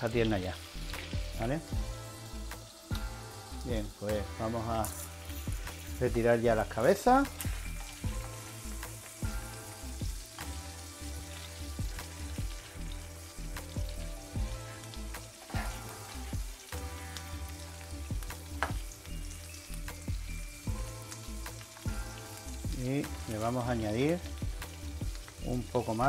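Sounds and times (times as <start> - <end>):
food sizzling in oil: 0.0 - 26.0.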